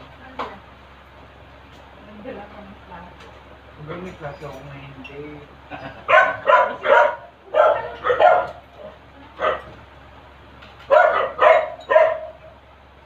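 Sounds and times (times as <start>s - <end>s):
dog barking: 6.0s - 9.8s, 10.9s - 12.6s.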